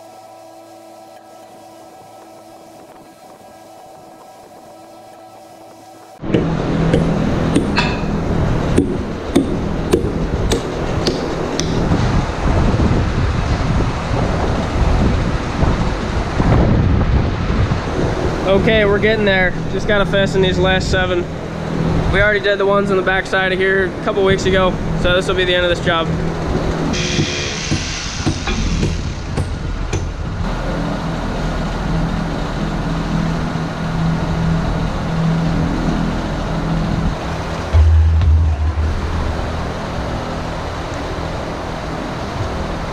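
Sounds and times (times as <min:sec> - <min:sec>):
engine-like drone: 0:00.0 - 0:42.9
loud mechanical rumble: 0:00.0 - 0:42.9
rubber mats knocking: 0:06.2 - 0:08.0, 0:08.8 - 0:11.8.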